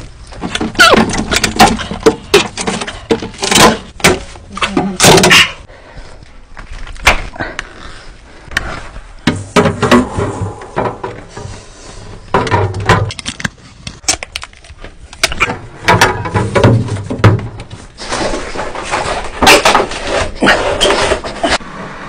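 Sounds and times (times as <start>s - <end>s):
plastic and metal parts clattering: 0.0s - 5.7s, 12.2s - 21.6s
refrigerator scraping on cardboard: 17.7s - 21.6s.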